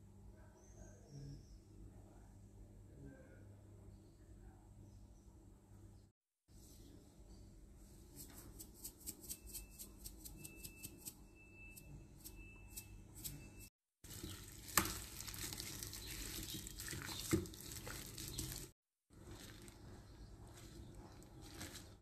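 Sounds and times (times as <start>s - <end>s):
hands mixing raw chicken: 14.0s - 22.0s.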